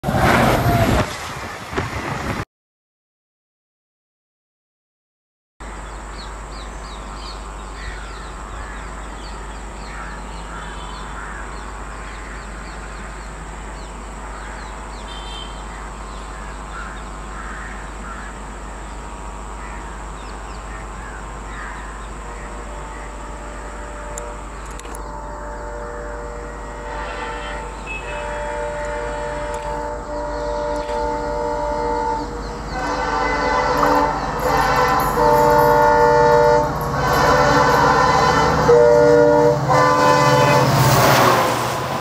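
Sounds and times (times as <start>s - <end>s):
diesel locomotive drone: 5.6s - 42.0s
birds chirping: 5.7s - 36.7s
crows cawing: 7.8s - 9.2s, 9.8s - 13.1s, 16.3s - 18.5s, 19.5s - 20.0s, 20.7s - 22.6s.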